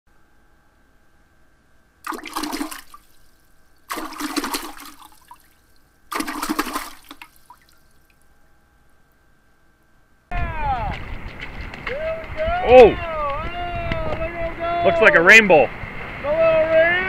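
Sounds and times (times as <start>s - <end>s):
rushing water-like whooshes: 3.9s - 5.4s, 6.1s - 7.6s.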